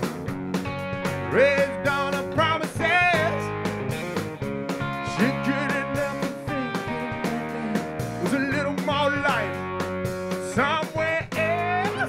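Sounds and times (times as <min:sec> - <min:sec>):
drum kit beat: 0:00.0 - 0:12.0
electric guitars: 0:00.0 - 0:12.0
lead vocal singing: 0:01.3 - 0:03.5, 0:05.0 - 0:09.6, 0:10.5 - 0:12.0.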